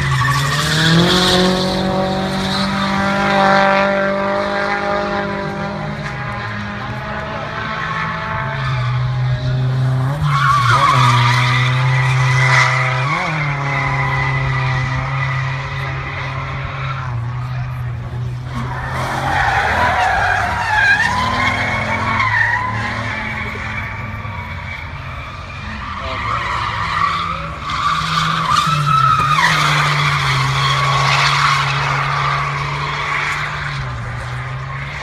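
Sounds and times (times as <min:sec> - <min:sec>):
engines at high revs: 0:00.0 - 0:35.0
tyres squealing: 0:18.5 - 0:30.8.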